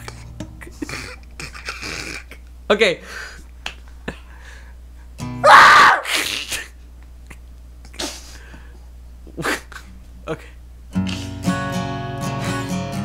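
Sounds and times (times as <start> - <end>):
low steady hum: 0.0 - 11.1
person sneeze-like outburst: 5.6 - 6.8.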